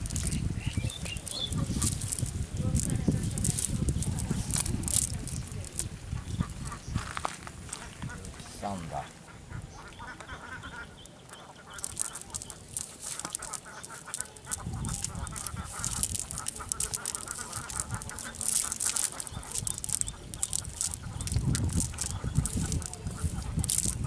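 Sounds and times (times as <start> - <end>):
wet net rustling: 0.0 - 0.4, 1.1 - 5.9, 11.8 - 24.0.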